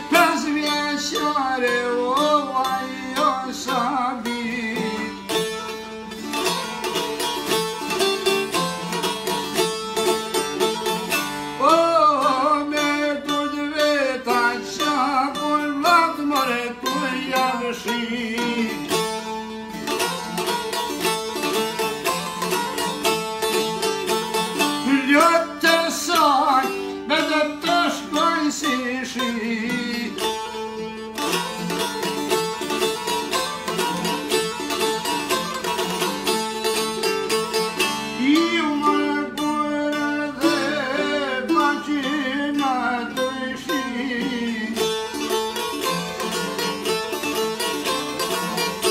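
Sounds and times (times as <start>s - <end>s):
man singing: 0.0s - 5.6s, 11.4s - 19.1s, 24.6s - 30.6s, 38.0s - 45.3s
plucked lutes droning: 0.0s - 48.9s.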